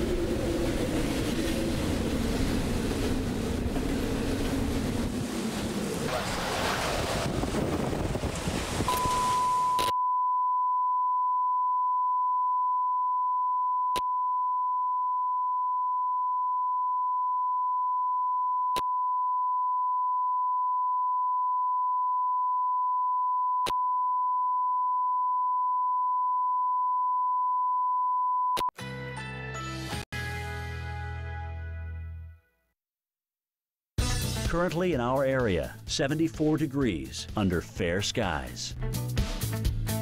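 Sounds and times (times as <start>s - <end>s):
wind noise: 0.0s - 9.6s
steady broadcast test tone: 8.9s - 28.7s.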